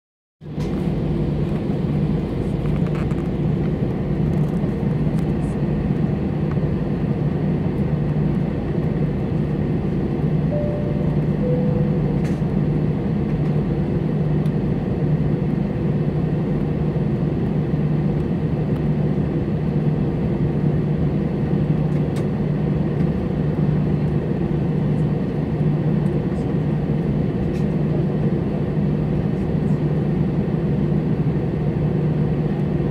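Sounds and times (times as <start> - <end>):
jet engine cabin drone: 0.4 - 32.9
two-note cabin chime: 10.5 - 12.5.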